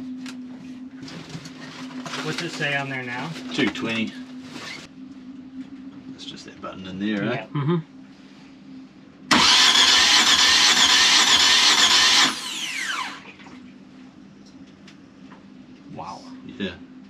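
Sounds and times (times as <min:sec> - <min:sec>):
diesel engine cranking on starter: 0:09.3 - 0:13.2.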